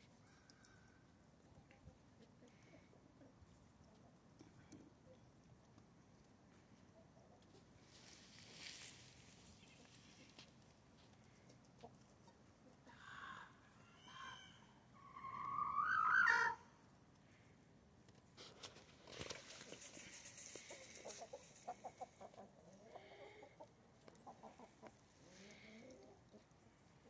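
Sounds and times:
chicken call rising in pitch: 13.0 - 16.7
brief rustle: 18.3 - 21.8.

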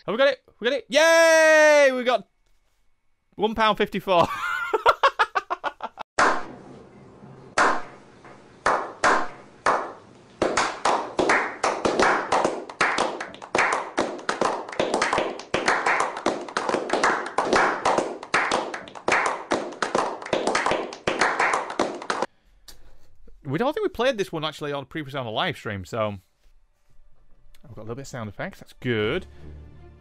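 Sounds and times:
hand clapping: 7.6 - 7.9, 8.6 - 22.3.

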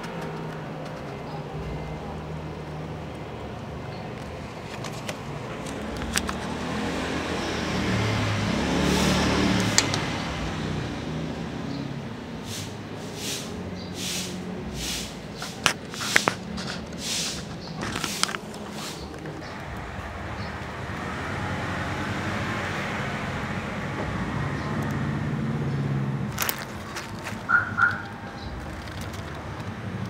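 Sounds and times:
motor vehicle passing: 0.0 - 30.0
sharp clicks and scrapes: 4.2 - 6.6, 14.8 - 19.6, 26.3 - 30.0.

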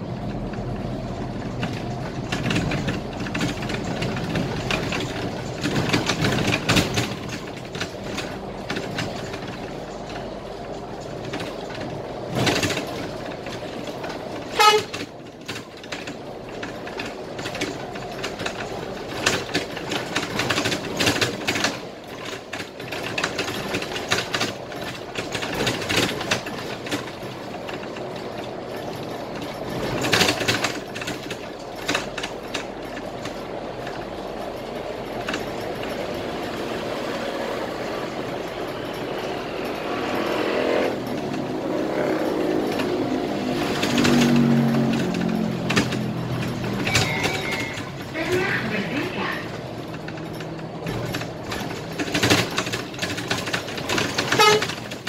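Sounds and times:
bus engine and road noise: 0.0 - 55.0
interior rattles: 0.1 - 55.0
short horn toot: 14.6 - 14.9, 54.4 - 54.7.

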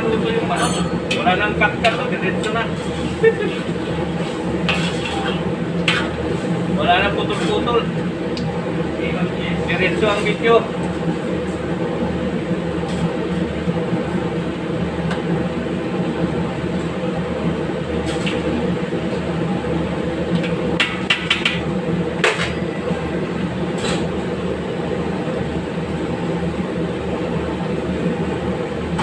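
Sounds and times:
gas range burner rumble: 0.0 - 29.0
ladle clinking against wok: 0.6 - 1.2.

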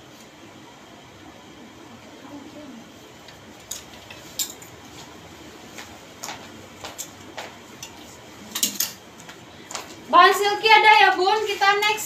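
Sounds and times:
clothes hangers clicking on metal rack: 3.7 - 4.6, 7.8 - 9.0.

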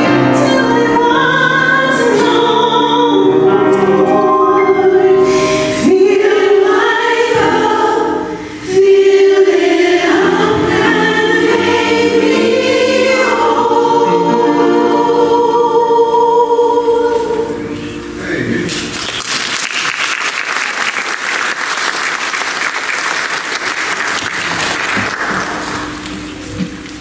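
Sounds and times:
church choir singing: 0.0 - 18.4.

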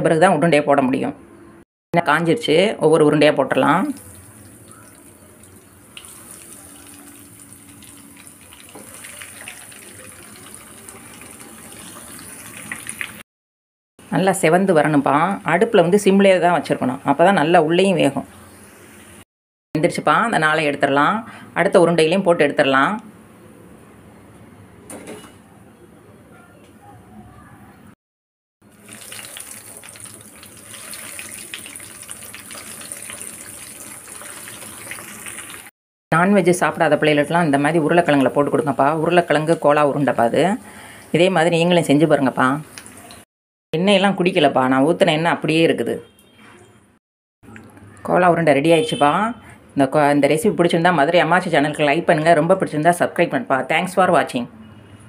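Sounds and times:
food sizzling in hot oil: 3.8 - 13.2, 28.7 - 35.7, 37.5 - 43.3.

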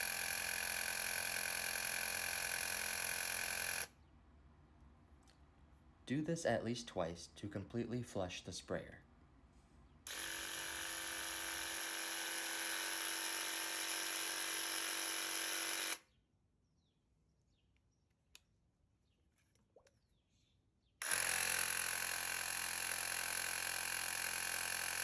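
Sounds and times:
paint sprayer pump buzzing: 0.0 - 3.9, 10.1 - 16.0, 21.0 - 25.0.

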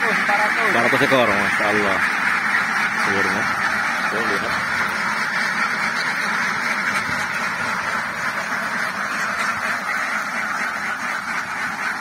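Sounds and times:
ducks quacking: 0.0 - 12.0.

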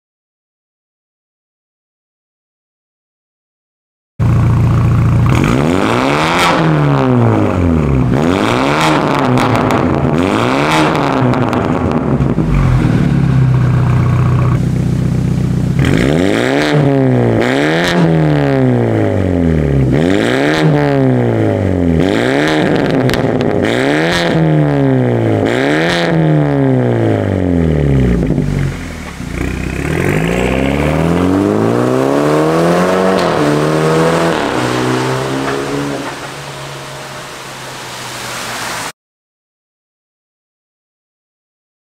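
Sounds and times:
car accelerating: 4.2 - 38.9
car engine revving: 4.2 - 38.9.

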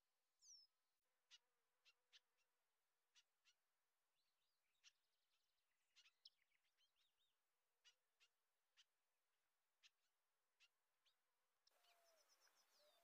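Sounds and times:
birds chirping and twittering: 4.2 - 9.0, 9.8 - 13.0.

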